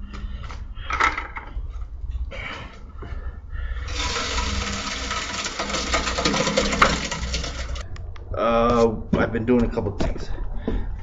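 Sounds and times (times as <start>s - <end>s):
wet concrete pouring: 3.8s - 7.8s.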